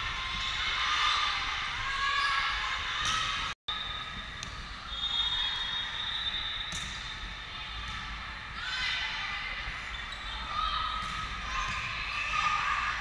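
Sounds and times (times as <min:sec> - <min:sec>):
echoing sports hall noise: 0:00.0 - 0:13.0.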